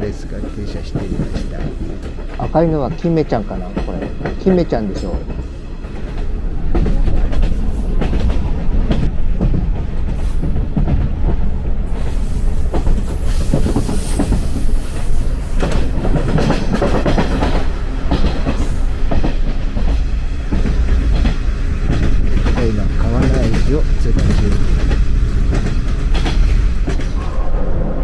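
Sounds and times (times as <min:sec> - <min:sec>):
train running gear rumble: 0:00.0 - 0:28.0
wheels clattering over rail joints: 0:12.5 - 0:27.7.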